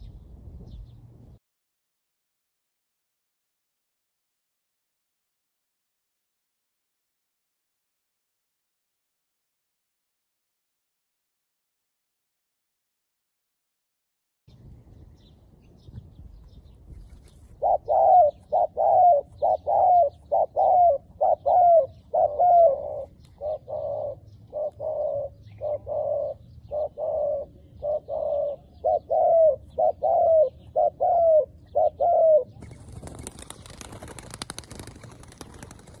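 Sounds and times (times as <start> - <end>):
dove cooing: 17.6 - 36.0.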